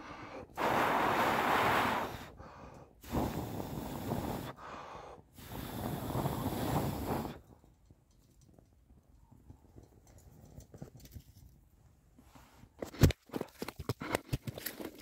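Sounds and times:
breath blown into stove: 0:00.0 - 0:07.6.

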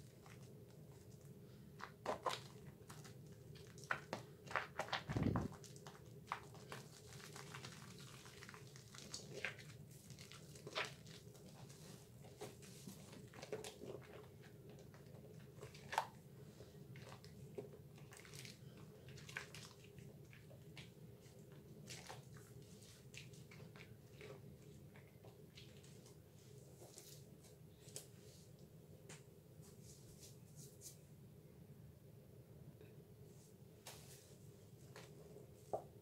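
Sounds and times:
soapy hands squelching: 0:06.3 - 0:11.4, 0:18.0 - 0:26.1.

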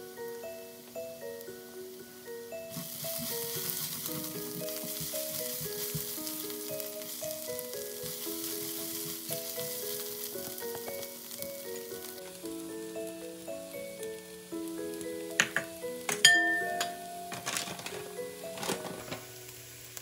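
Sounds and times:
onion sizzling in a skillet: 0:00.0 - 0:20.0
spatula stirring: 0:02.7 - 0:12.5.

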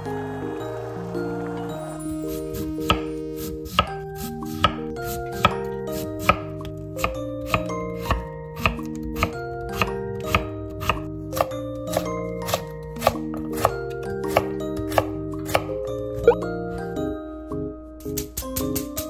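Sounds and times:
soft background music: 0:00.0 - 0:19.0
knife chopping on wooden board: 0:02.8 - 0:04.8, 0:06.2 - 0:15.7.

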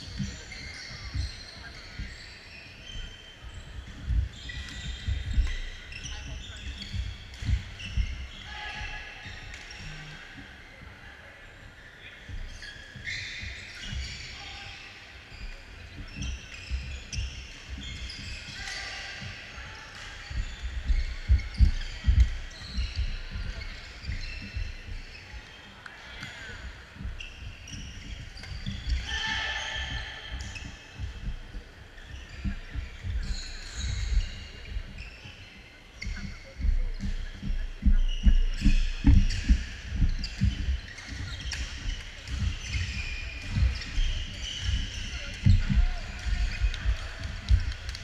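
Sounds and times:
voices in a large gym: 0:00.0 - 0:48.0
footsteps on wooden floor: 0:36.0 - 0:48.0.

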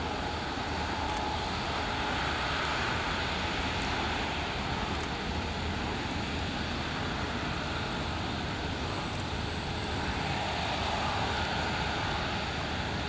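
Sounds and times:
jet engines rushing: 0:00.0 - 0:13.0.

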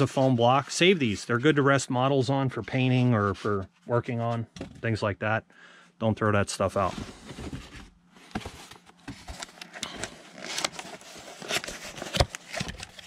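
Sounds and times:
cardboard scraping and knocking: 0:06.8 - 0:09.5.

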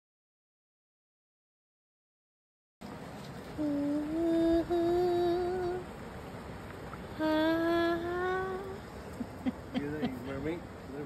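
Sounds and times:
voice holding wavering notes: 0:07.2 - 0:08.8.

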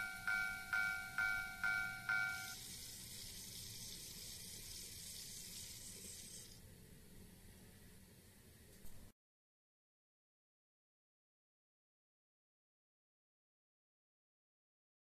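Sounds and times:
level-crossing bell ringing: 0:00.0 - 0:02.7
steady hiss: 0:00.0 - 0:09.1.

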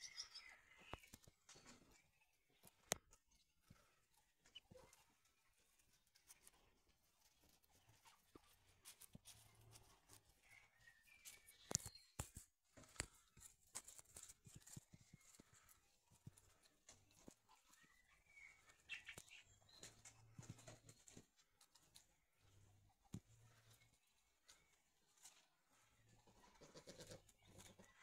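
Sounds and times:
ducks pecking clicks: 0:11.2 - 0:28.0.

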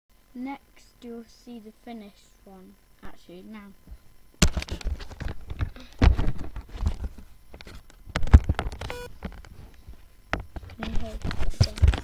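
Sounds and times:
camera handling knocks and rubs: 0:04.4 - 0:12.0.

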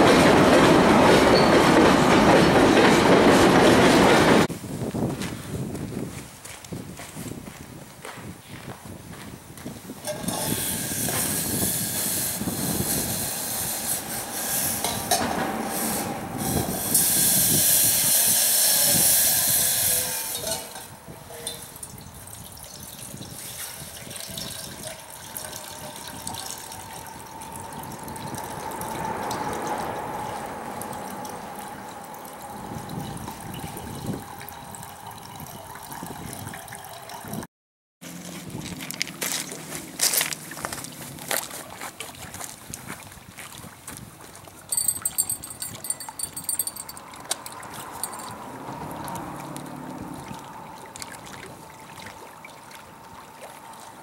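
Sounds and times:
water pouring into a pot: 0:21.8 - 0:30.0.

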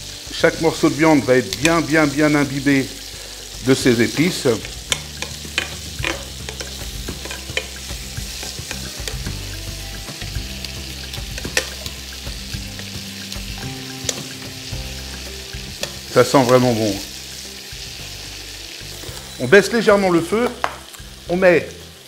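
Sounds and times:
meat sizzling in butter: 0:00.0 - 0:22.0
metal tongs clicking against pan: 0:01.5 - 0:09.4, 0:10.2 - 0:17.1.

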